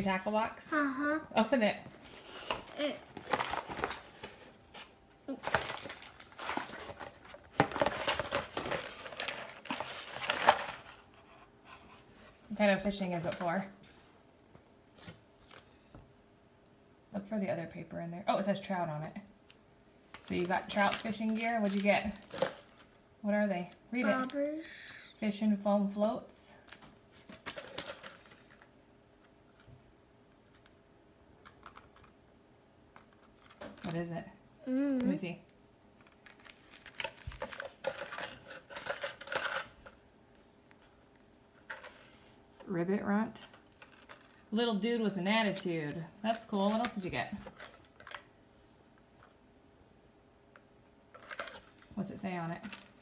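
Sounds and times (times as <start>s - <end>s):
packaging crinkling: 5.3s - 11.1s, 20.2s - 22.9s, 36.0s - 39.8s.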